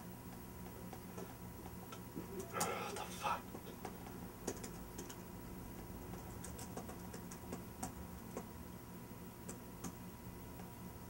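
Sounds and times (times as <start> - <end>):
faint steady hum: 0.0 - 11.0
laptop keys clicking: 3.8 - 8.5.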